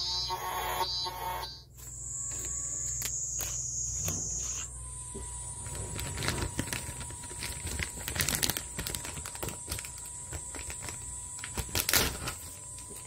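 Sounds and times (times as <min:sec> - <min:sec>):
cicada buzzing: 0:00.0 - 0:06.0.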